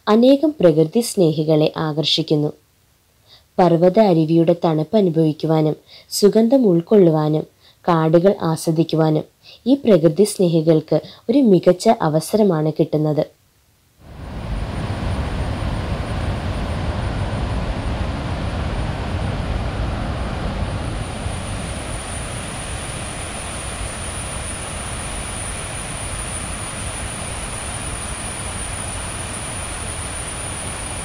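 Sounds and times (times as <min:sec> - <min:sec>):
thin steady high tone: 0:20.0 - 0:31.0.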